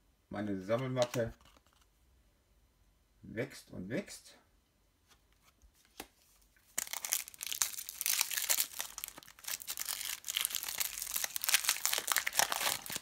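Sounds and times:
foil wrapper crinkling: 6.7s - 13.0s.

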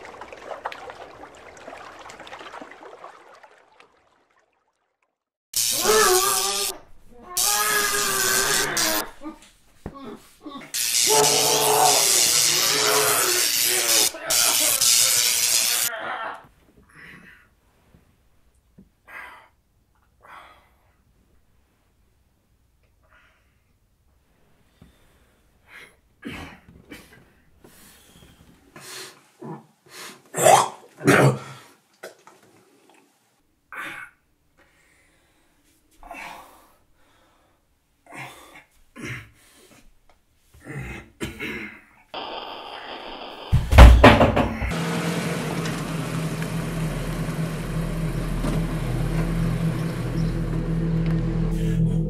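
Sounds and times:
person coughing: 40.8s - 41.8s
loud low thud: 43.6s - 44.7s
low music drone with held tones: 45.2s - 52.0s.

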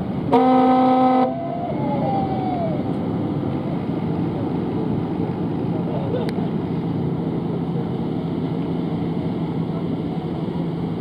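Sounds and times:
ship's horn blast: 0.2s - 1.8s.

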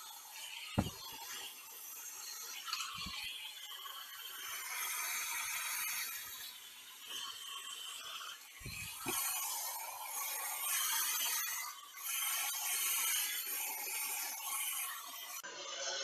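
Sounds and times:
short low thuds: 0.8s - 1.1s.

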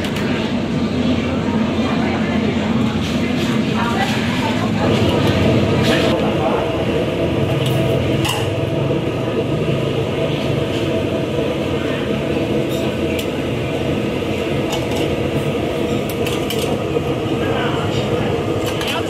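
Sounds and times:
constant hum: 0.0s - 19.0s
low mechanical rumble: 0.0s - 19.0s
metal bowls and utensils clinking: 14.6s - 16.8s.

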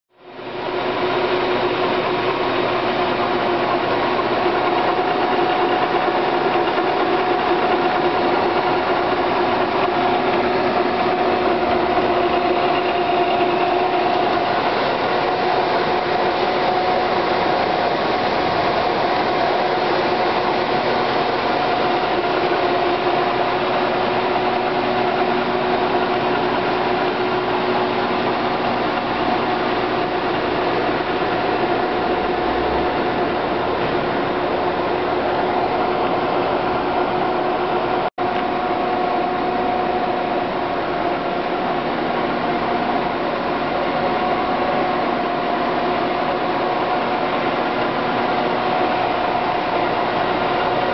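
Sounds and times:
constant mechanical whine: 0.2s - 50.9s
lathe motor humming: 0.4s - 50.9s.

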